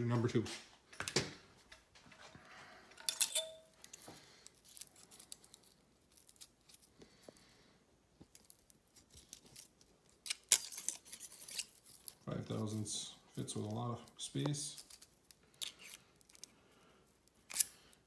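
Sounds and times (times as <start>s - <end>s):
metal gauge blades clicking: 3.0s - 3.6s.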